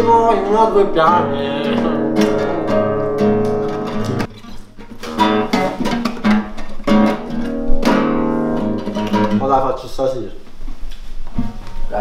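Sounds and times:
nylon-string guitar chords: 0.0s - 9.4s.

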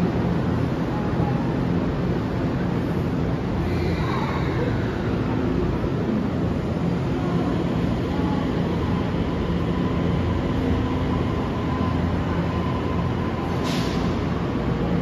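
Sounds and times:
train rumbling: 0.0s - 15.0s.

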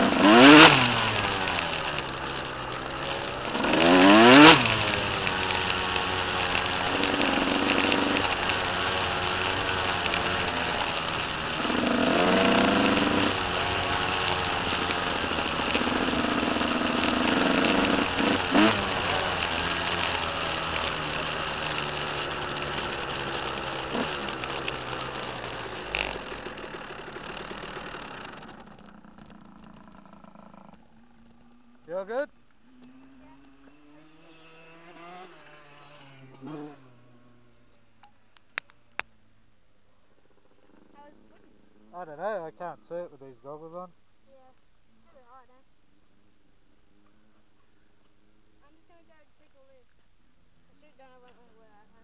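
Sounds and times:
dirt bike engine revving: 0.0s - 39.1s.

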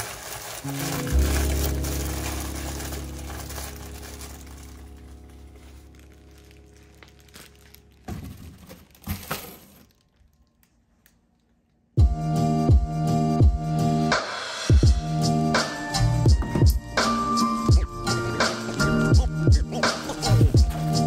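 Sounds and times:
plastic bag crinkling: 0.0s - 11.8s, 17.9s - 21.0s.

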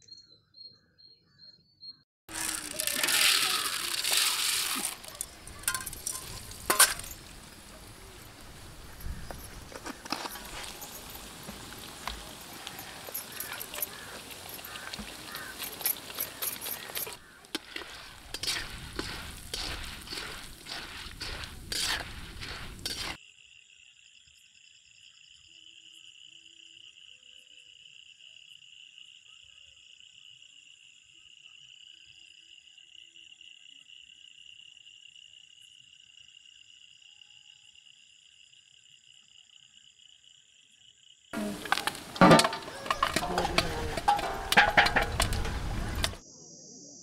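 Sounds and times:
insects chirring: 0.0s - 47.0s
corn sizzling in hot oil: 2.3s - 23.2s, 41.4s - 46.2s.

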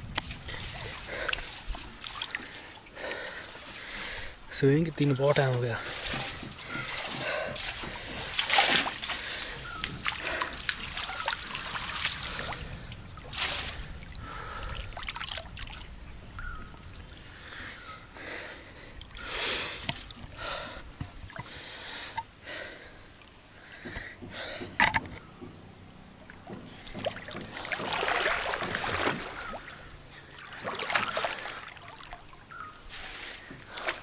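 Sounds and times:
pool water splashing: 0.0s - 4.3s, 5.3s - 16.0s, 26.2s - 34.0s.

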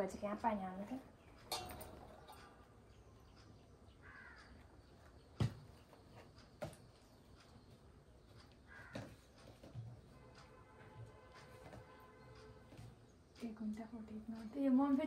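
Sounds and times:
metal plates knocking and clinking: 1.5s - 2.6s
crow caw: 4.0s - 4.6s, 8.7s - 9.2s.

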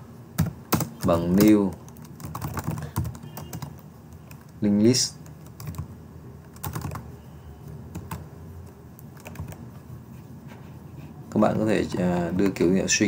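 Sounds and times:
computer keyboard typing: 0.4s - 7.1s, 7.7s - 9.7s, 11.8s - 12.9s.

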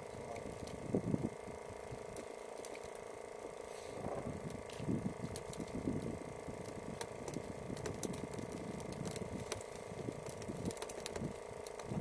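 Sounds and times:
boat engine idling: 0.0s - 12.0s
sharp clicks: 4.4s - 12.0s.

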